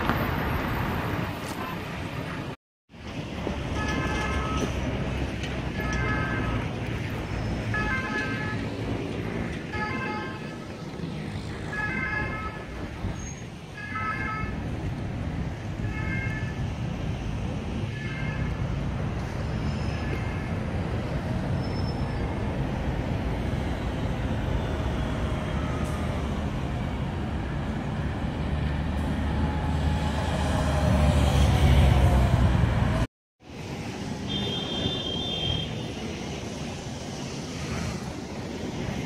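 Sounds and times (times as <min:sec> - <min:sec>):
road traffic passing: 0:00.0 - 0:39.0
passing engine: 0:22.2 - 0:34.3.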